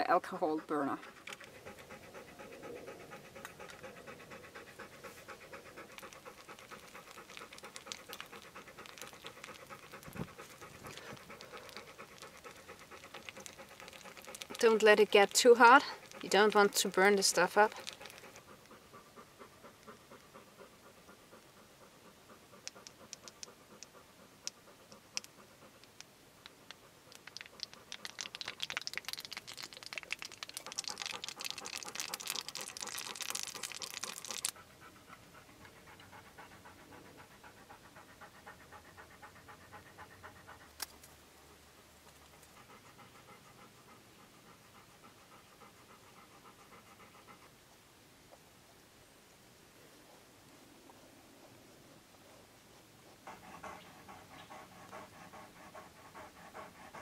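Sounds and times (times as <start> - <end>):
hot resin crackling and sizzling: 6.0 - 18.4, 26.7 - 34.6.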